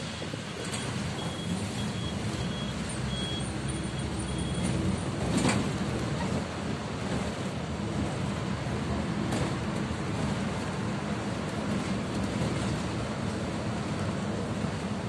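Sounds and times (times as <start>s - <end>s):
bus engine and road noise: 0.0s - 15.0s
faint repeating electronic beep: 1.2s - 4.7s.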